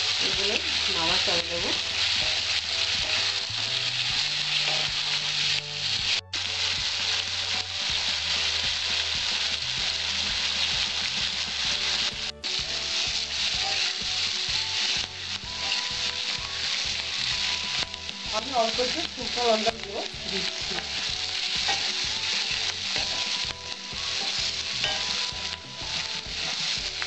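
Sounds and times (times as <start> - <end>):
vegetables sizzling in hot oil: 0.0 - 27.0
wooden spatula scraping pan: 15.4 - 27.0.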